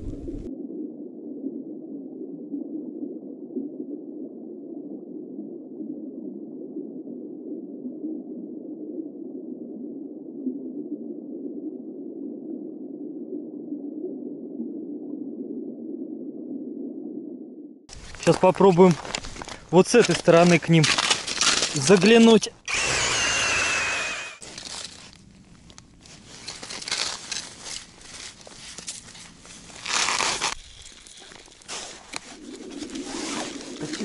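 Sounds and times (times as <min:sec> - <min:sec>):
speech: 0:18.2 - 0:19.0, 0:19.7 - 0:21.0, 0:21.7 - 0:22.6, 0:33.8 - 0:34.0
muffled underwater-style rush: 0:30.6 - 0:34.0.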